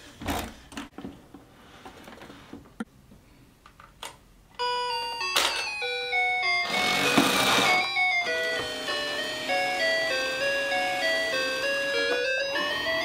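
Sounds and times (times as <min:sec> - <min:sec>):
claw machine electronic jingle: 0:04.6 - 0:13.0.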